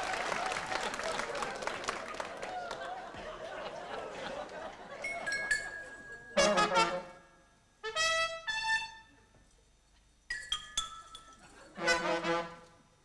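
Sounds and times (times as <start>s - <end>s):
brass blasts: 6.4s - 9.1s, 11.7s - 12.8s.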